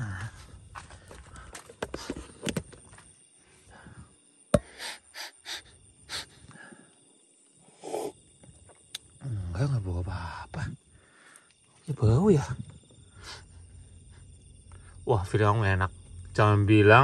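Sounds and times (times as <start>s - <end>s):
person sniffing: 4.6s - 6.4s.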